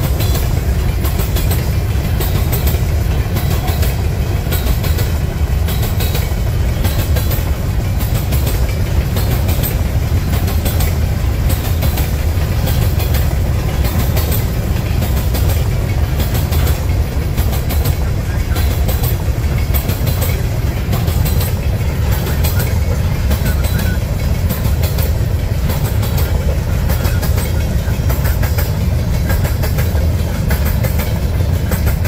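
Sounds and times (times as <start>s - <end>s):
clicks and clacks of wheels: 0.0s - 32.0s
train wheels rumbling on rails: 0.0s - 32.0s.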